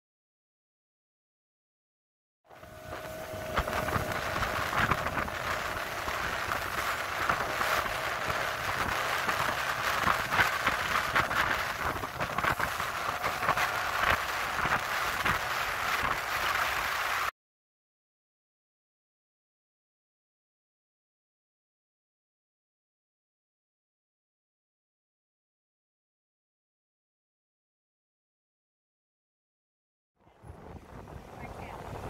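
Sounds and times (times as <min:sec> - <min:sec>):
motorboat engine: 0:02.5 - 0:17.3
wind buffeting microphone: 0:02.5 - 0:17.3, 0:30.3 - 0:32.0.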